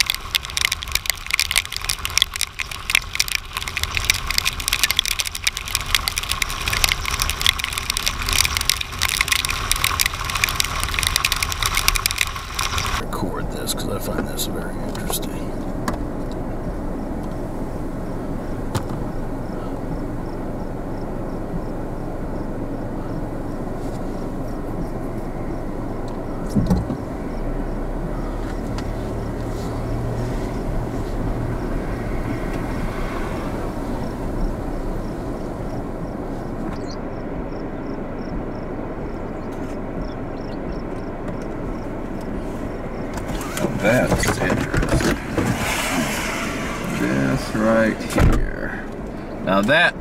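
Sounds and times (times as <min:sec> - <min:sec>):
wind blowing across microphone: 0:14.1 - 0:50.0.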